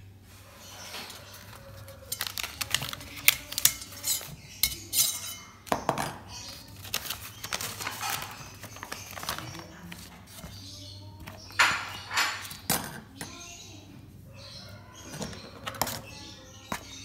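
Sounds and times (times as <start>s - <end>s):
paper crinkling: 1.0s - 4.4s, 6.4s - 11.8s
metal spoon clinking on plate: 1.9s - 6.1s.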